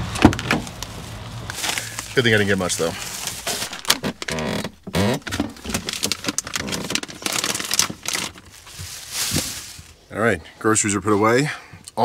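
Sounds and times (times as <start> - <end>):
plastic packaging rustling: 0.0 - 10.1
items knocking on fridge shelves: 3.5 - 9.5.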